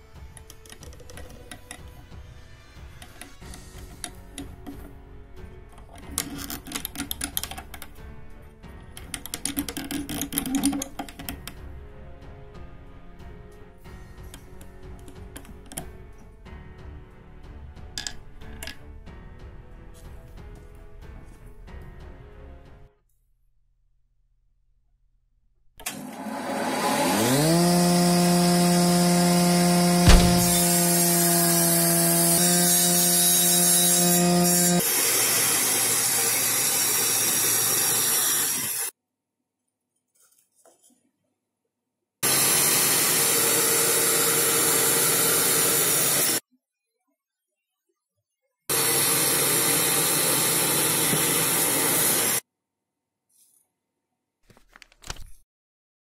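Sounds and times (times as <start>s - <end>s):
power tool working wood: 25.8s - 38.9s, 42.2s - 46.4s, 48.7s - 52.4s
saw blade cutting wood: 25.9s - 38.9s, 42.2s - 46.4s, 48.7s - 52.4s
table saw motor whine: 25.9s - 38.9s, 42.2s - 46.4s, 48.7s - 52.4s.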